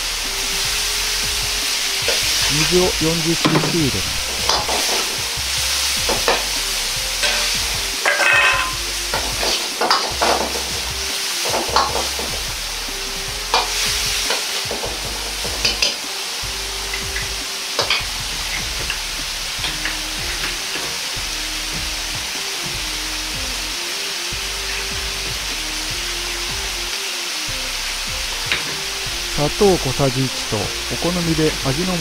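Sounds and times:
food sizzling in a wok: 0:00.0 - 0:32.0
metal ladle scraping wok: 0:00.2 - 0:02.6, 0:03.4 - 0:12.6, 0:13.4 - 0:16.0, 0:16.7 - 0:21.1.

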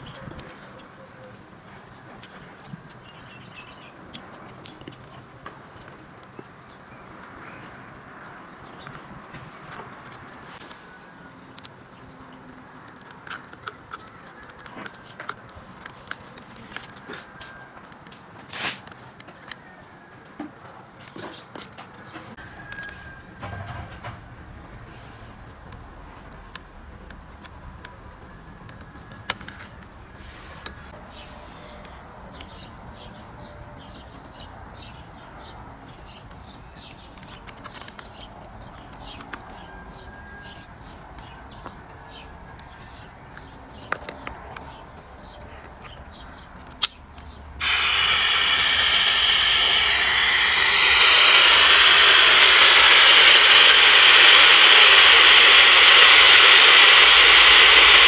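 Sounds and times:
radio static hiss: 0:47.6 - 0:58.0.

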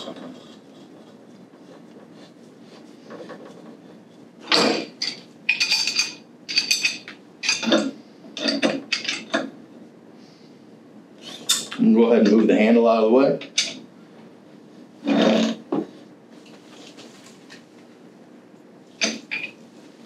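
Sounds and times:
metal pipe fittings clinking: 0:05.0 - 0:09.4, 0:13.4 - 0:13.8, 0:19.0 - 0:19.6.

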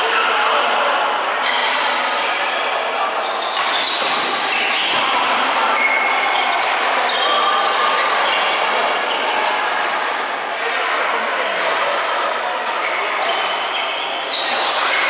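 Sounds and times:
voices: 0:00.0 - 0:15.0
shoes squeaking on court floor: 0:03.2 - 0:07.6, 0:12.8 - 0:15.0.

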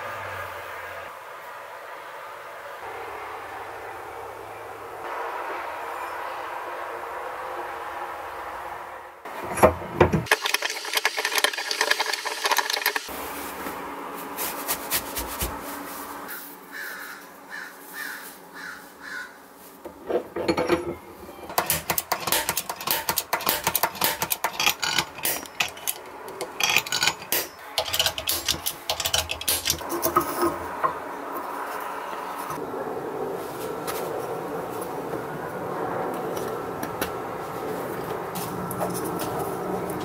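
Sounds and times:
metal punch scraping and clicking: 0:09.3 - 0:10.3, 0:19.9 - 0:31.0.

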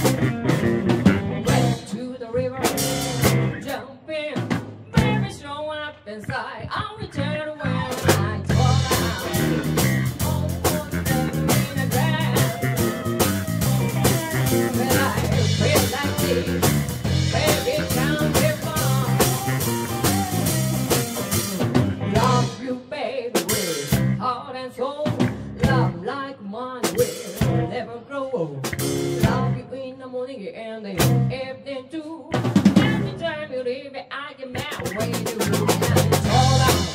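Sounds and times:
drum kit: 0:00.0 - 0:01.9, 0:02.6 - 0:03.8, 0:04.4 - 0:05.4, 0:07.9 - 0:22.7, 0:23.4 - 0:24.3, 0:25.1 - 0:26.0, 0:26.8 - 0:27.8, 0:28.6 - 0:29.6, 0:31.0 - 0:31.3, 0:32.3 - 0:33.2, 0:34.6 - 0:36.9
electric bass: 0:00.0 - 0:03.7, 0:04.9 - 0:05.4, 0:07.0 - 0:22.6, 0:23.8 - 0:24.4, 0:25.2 - 0:26.1, 0:27.0 - 0:27.8, 0:28.6 - 0:29.7, 0:31.0 - 0:31.4, 0:32.6 - 0:33.3, 0:34.6 - 0:36.9
woman singing: 0:01.2 - 0:20.2, 0:22.1 - 0:28.6, 0:29.2 - 0:36.9
congas: 0:07.9 - 0:22.7, 0:34.6 - 0:36.9.

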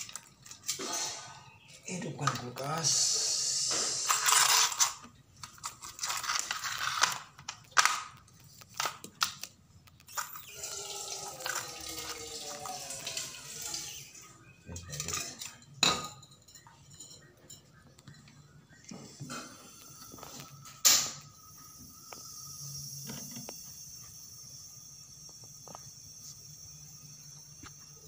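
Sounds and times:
refrigerant gas hissing from hose: 0:02.7 - 0:04.3, 0:19.2 - 0:28.0.

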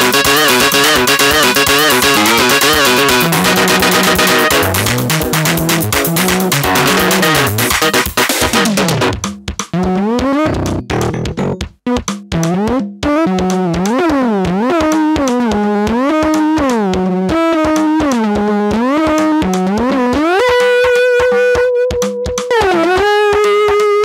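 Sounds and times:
synthesizer melody: 0:00.0 - 0:09.3, 0:10.4 - 0:11.7
quick steady beat: 0:00.0 - 0:24.0.

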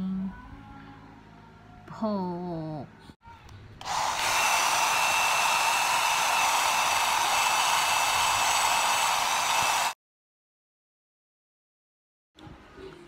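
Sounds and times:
hair dryer running: 0:03.8 - 0:10.0.

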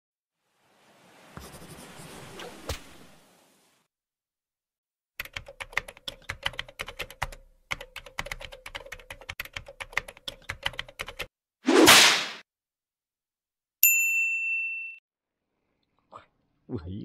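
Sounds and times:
computer keyboard typing: 0:05.2 - 0:11.3.

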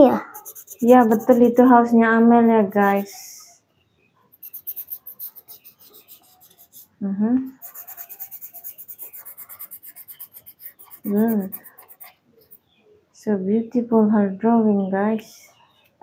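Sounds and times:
marker scratching on paper: 0:00.0 - 0:01.8, 0:02.6 - 0:03.2, 0:04.3 - 0:12.6.

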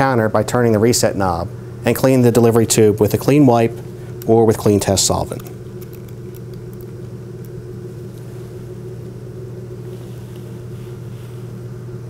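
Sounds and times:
low hum: 0:01.4 - 0:12.0
soft handling rustles: 0:09.8 - 0:11.6.

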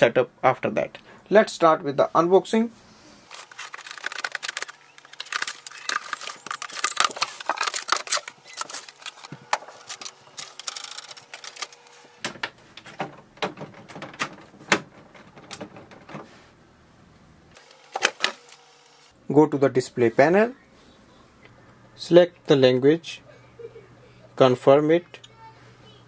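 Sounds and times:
cardboard and packing rustling: 0:03.3 - 0:12.2
sharp clicks and knocks: 0:03.5 - 0:16.2.

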